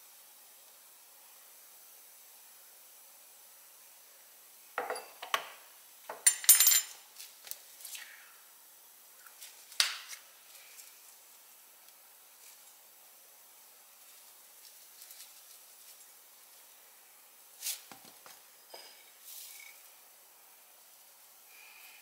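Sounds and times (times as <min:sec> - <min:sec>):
metal spoon clinking on ceramic plate: 0:04.8 - 0:05.4, 0:06.1 - 0:07.0.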